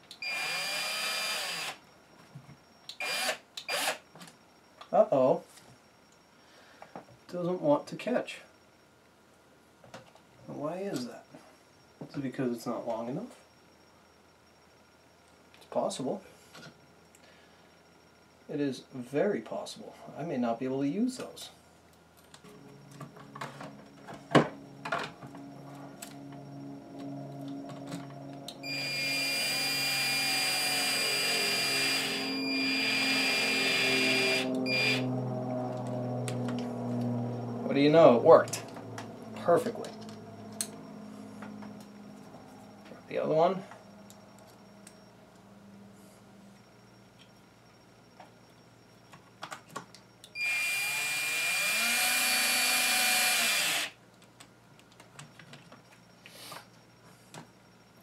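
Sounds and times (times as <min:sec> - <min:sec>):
cordless drill whining: 0:00.2 - 0:01.8, 0:03.0 - 0:04.0, 0:28.6 - 0:35.1, 0:50.4 - 0:54.0.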